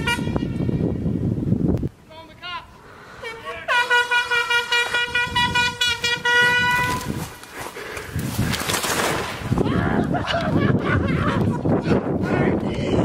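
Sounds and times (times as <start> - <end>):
air horn blast: 0.0 - 1.0, 3.2 - 7.3
rustling and wind on microphone: 0.0 - 2.1, 4.6 - 13.0.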